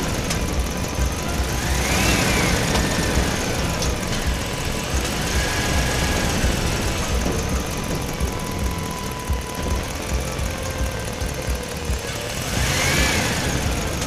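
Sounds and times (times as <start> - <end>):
faint high tone: 0.0 - 12.6
low engine rumble: 0.0 - 14.0.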